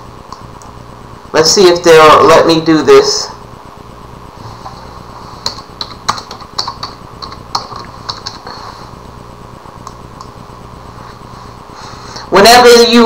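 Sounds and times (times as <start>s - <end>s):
keyboard keys clicking: 5.5s - 8.4s.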